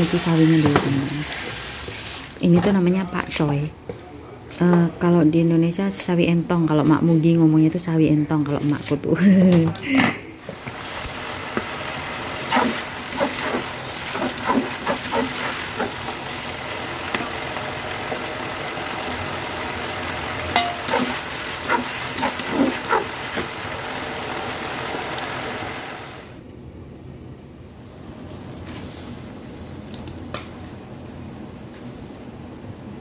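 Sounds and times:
chicken sizzling in a wok: 0:00.0 - 0:02.3, 0:10.4 - 0:26.4
clinks and taps: 0:20.6 - 0:20.8.

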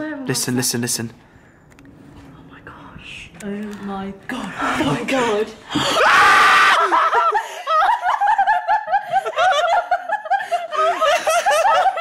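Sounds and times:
people giggling: 0:06.8 - 0:12.0.

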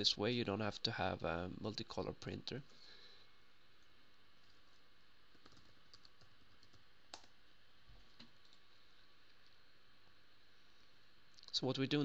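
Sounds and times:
low room hiss: 0:00.0 - 0:12.0
keyboard typing: 0:05.3 - 0:07.3.

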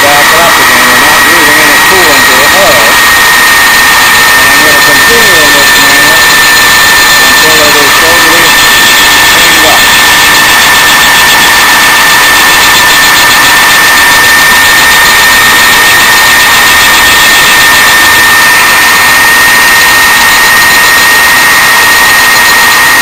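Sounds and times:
grinding hiss: 0:00.0 - 0:06.1
grinder high whine: 0:00.0 - 0:23.0.

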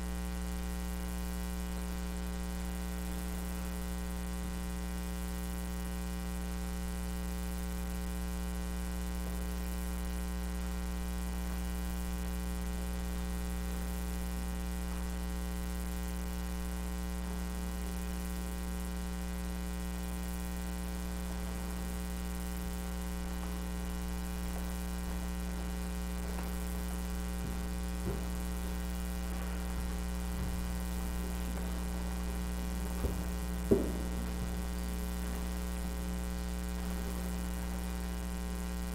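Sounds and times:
electrical mains hum: 0:00.0 - 0:38.9
faint knocks: 0:23.3 - 0:37.9.

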